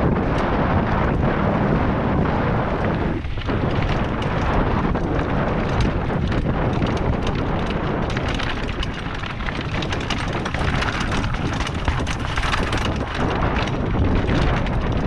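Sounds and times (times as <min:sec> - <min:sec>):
bike rattling: 0:00.0 - 0:15.0
wind buffeting microphone: 0:00.0 - 0:15.0
tyres crunching over loose stones: 0:03.3 - 0:15.0.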